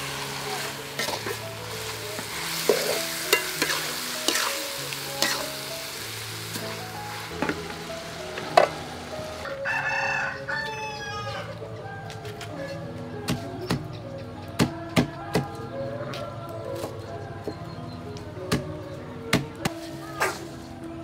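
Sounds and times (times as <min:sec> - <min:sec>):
frying sizzle: 0:00.0 - 0:10.3
metal spatula scraping a wok: 0:00.2 - 0:05.7
rooster crowing: 0:09.4 - 0:11.6.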